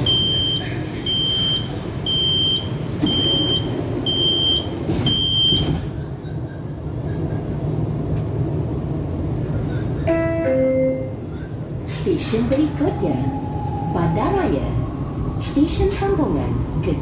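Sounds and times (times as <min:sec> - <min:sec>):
door-closing warning beeps: 0:00.0 - 0:05.9
train hum: 0:00.0 - 0:17.0.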